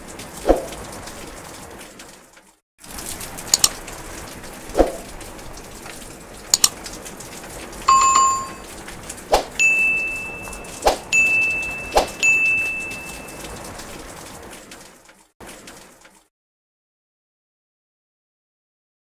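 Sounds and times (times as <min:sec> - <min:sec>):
long high bell tone: 0:07.9 - 0:08.6, 0:09.6 - 0:13.7
short bell ding: 0:07.9 - 0:08.6, 0:09.6 - 0:13.5.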